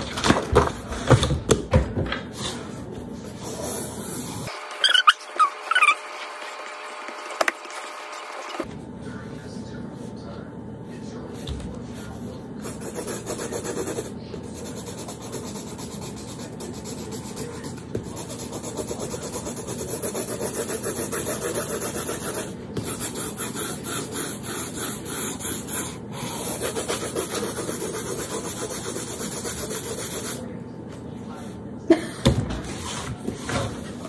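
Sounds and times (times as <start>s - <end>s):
pencil scratching on paper: 12.6s - 30.4s.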